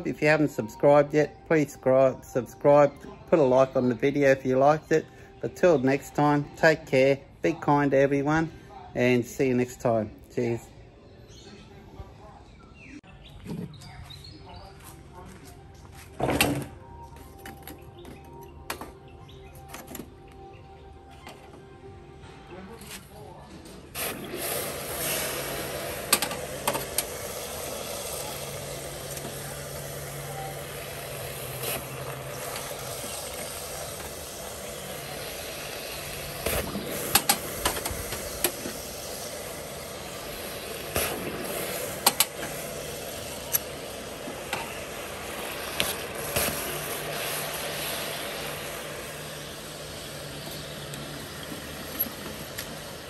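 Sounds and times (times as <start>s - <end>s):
steady low hum: 23.8s - 53.0s.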